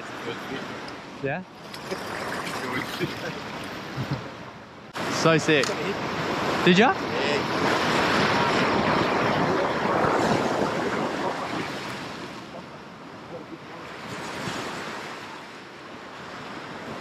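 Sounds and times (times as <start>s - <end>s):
waves breaking against rock: 1.6s - 4.2s.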